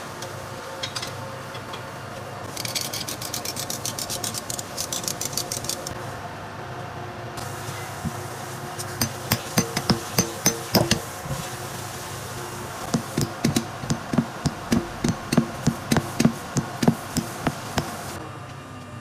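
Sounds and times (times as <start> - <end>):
hammer striking metal: 9.0 - 11.1, 12.9 - 18.2.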